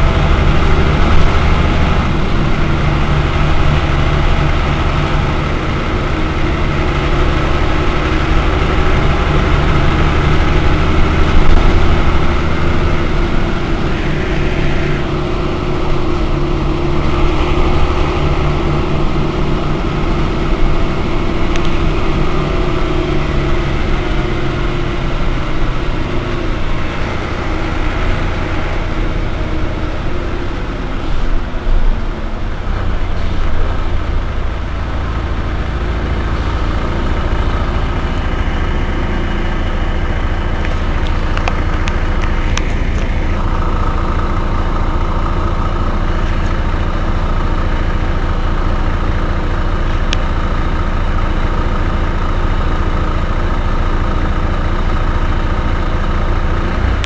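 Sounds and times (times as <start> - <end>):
bus diesel engine idling: 0.0 - 57.0
high steady whine: 0.0 - 57.0.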